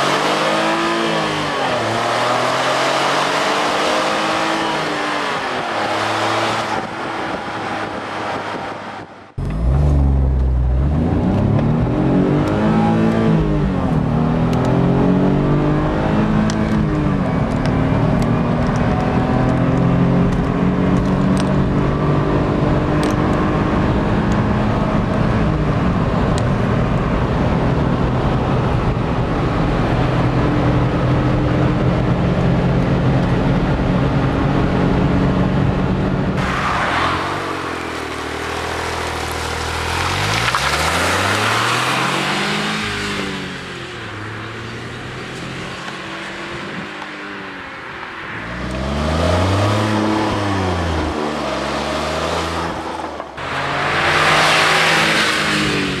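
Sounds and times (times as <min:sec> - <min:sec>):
car engine drone from inside cabin: 0:01.4 - 0:36.8
wind noise: 0:03.7 - 0:10.0
vehicles passing by: 0:35.3 - 0:56.0.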